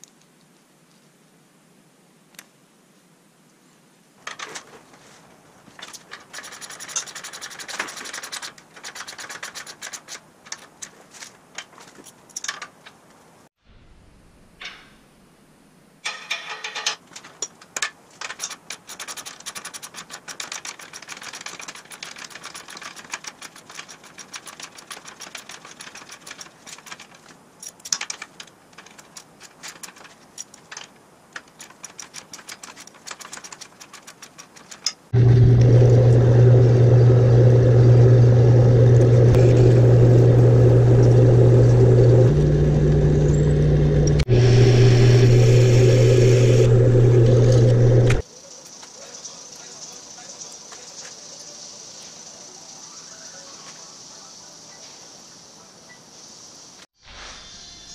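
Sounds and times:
hand tools clicking and clinking: 5.7s - 13.1s, 16.0s - 35.1s
metal lathe drilling with hum: 35.2s - 48.2s.

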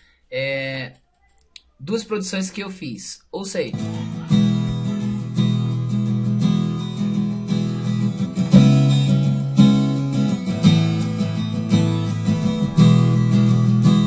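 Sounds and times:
acoustic guitar strumming chords: 3.7s - 14.0s.

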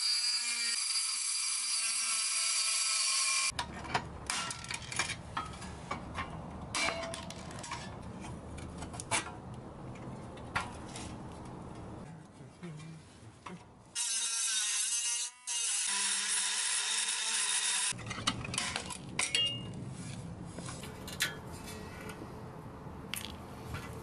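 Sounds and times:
rotary tool grinding metal: 0.0s - 3.6s, 14.0s - 18.0s.

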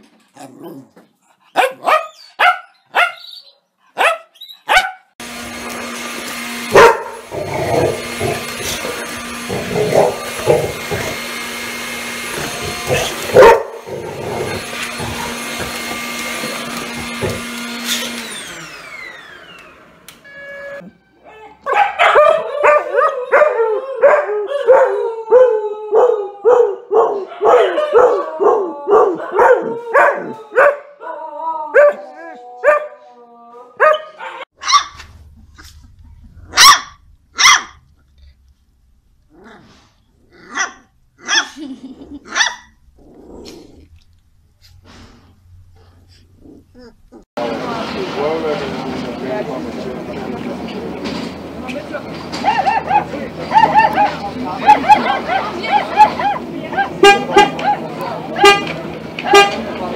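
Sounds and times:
dog barking: 1.6s - 3.3s, 4.0s - 5.1s, 6.7s - 8.4s, 9.5s - 10.8s, 12.9s - 15.3s, 21.6s - 25.0s, 26.0s - 31.1s, 31.8s - 33.0s, 33.8s - 35.0s, 36.5s - 37.8s, 40.5s - 41.6s, 42.3s - 42.7s, 52.4s - 58.5s
vacuum cleaner whining: 5.2s - 21.1s, 47.4s - 59.9s
dog howling: 21.3s - 34.4s, 52.4s - 58.1s.

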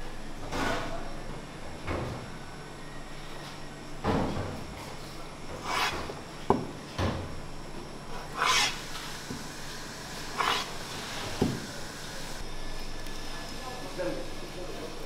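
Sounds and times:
food scraped across cutting board: 5.6s - 6.1s, 8.3s - 8.8s, 10.3s - 11.3s.

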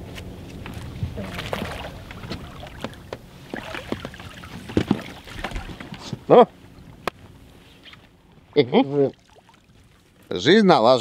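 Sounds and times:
water splashing: 1.1s - 6.1s, 9.0s - 10.4s
knocks against boat: 2.3s - 6.3s.

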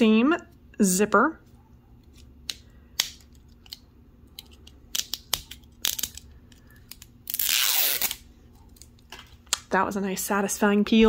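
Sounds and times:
zipper strip ripping off wrapper: 7.2s - 8.2s.

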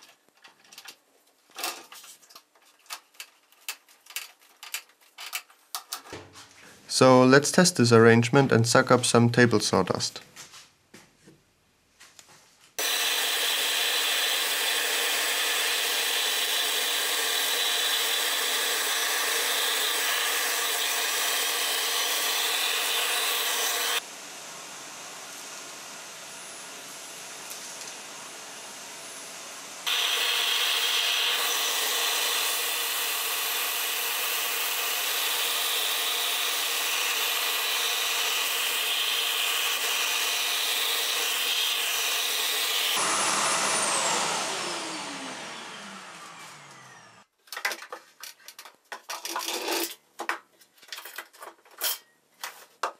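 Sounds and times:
motor hum: 35.3s - 47.3s.

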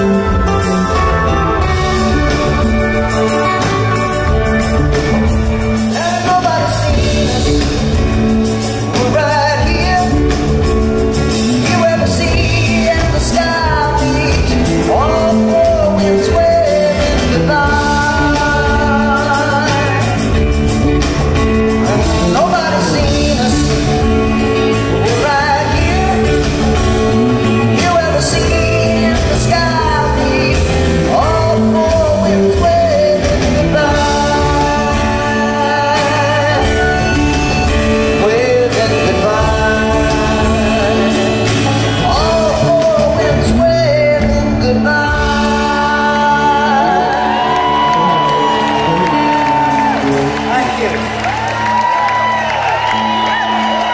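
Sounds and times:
lead melody bending in pitch: 0.0s - 7.6s
acoustic guitar: 0.0s - 53.9s
drums: 0.0s - 53.9s
electric bass: 0.0s - 53.9s.

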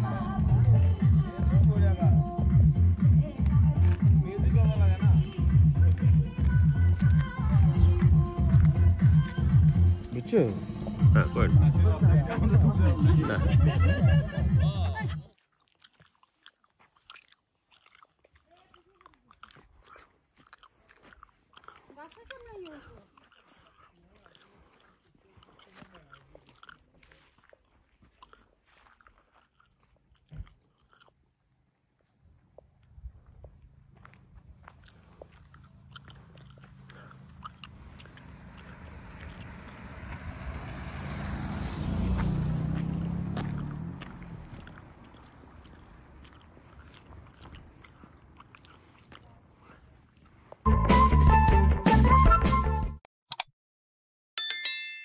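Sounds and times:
car passing close by: 37.1s - 45.9s.

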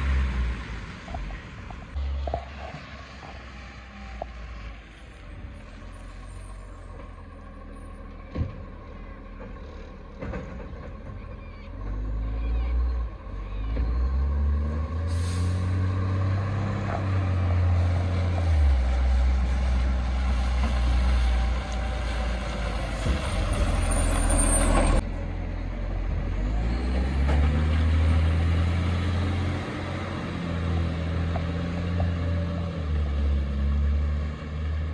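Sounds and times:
air brakes hissing: 15.0s - 15.9s.

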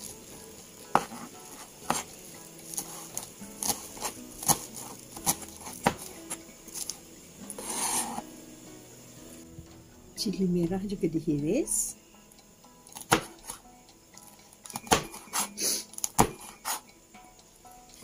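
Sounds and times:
knife chopping on plastic board: 0.9s - 2.1s, 2.7s - 6.9s, 12.9s - 13.6s, 14.6s - 16.8s.

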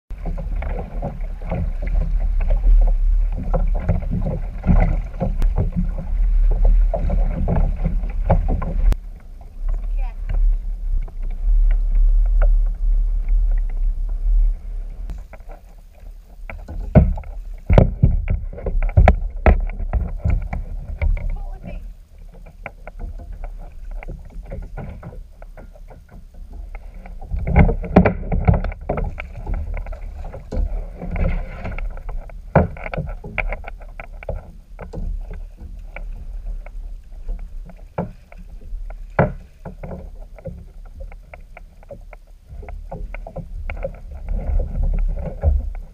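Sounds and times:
knocks and rattles from boat: 0.1s - 45.9s
water slapping against hull: 0.1s - 45.9s
wind rumble on microphone: 0.1s - 45.9s.

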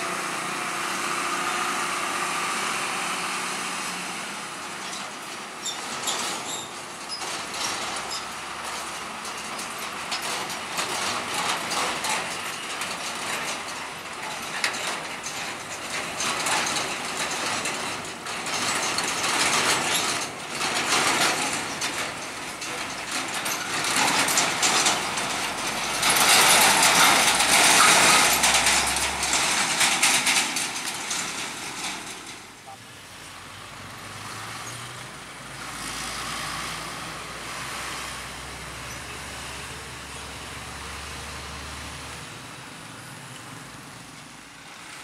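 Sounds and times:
truck engine rumble: 0.0s - 45.0s
truck body rattling and clanking: 4.1s - 32.8s.

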